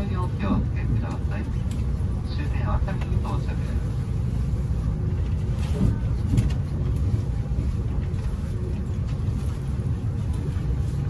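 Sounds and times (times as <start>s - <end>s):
train cabin rumble: 0.0s - 11.0s.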